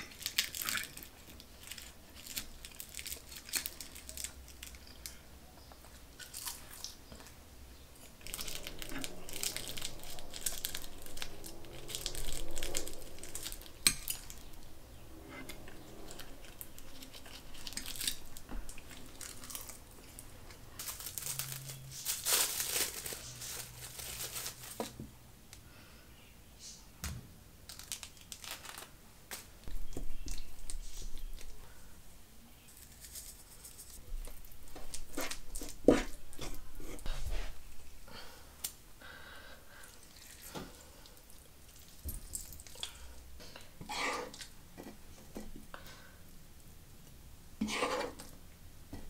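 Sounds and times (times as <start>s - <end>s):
tearing and crinkling: 0.1s - 4.8s, 8.2s - 14.6s, 15.4s - 20.2s, 20.8s - 25.0s, 27.7s - 29.5s, 32.6s - 37.1s.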